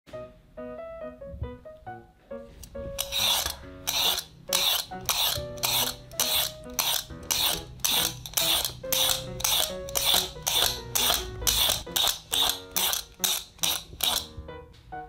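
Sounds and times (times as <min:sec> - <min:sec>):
light background music: 0:00.1 - 0:15.0
peeler scraping sweet potato skin: 0:02.6 - 0:14.3.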